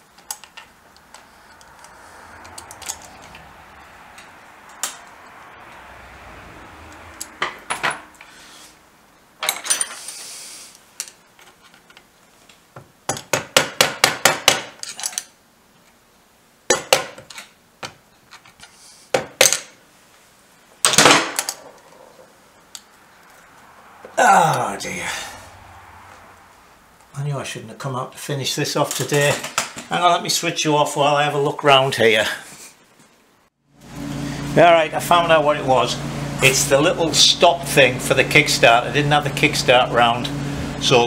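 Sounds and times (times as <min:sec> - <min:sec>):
metal parts clattering: 0:09.4 - 0:10.2
metal tools clinking and knocking: 0:09.4 - 0:10.2.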